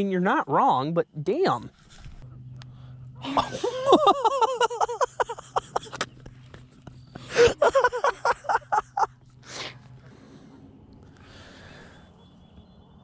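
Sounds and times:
woman laughing hard: 3.2s - 6.0s, 7.2s - 9.2s
gasping breath: 9.4s - 12.2s.

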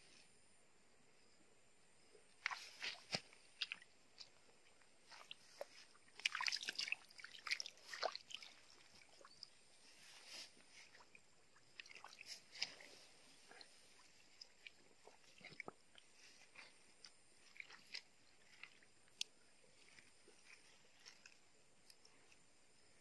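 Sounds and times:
quiet hiss: 0.0s - 23.0s
small clicks and soft pops: 17.9s - 19.4s.

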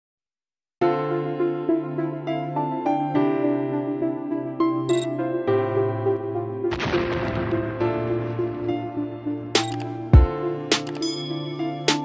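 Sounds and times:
instrumental melody: 8.9s - 12.0s.

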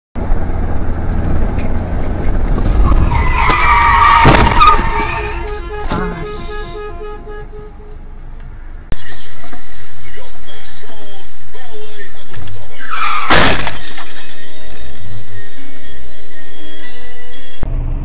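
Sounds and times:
low road rumble: 0.2s - 18.0s
car tyres screeching: 1.3s - 11.2s, 12.1s - 17.7s
bang: 3.5s - 4.9s
rapid repeating beep: 13.8s - 17.6s.

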